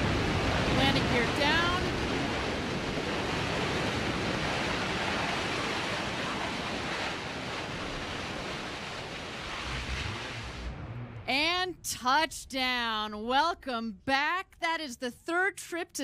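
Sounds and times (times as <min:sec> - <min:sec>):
rocket engine rushing: 0:00.0 - 0:11.5.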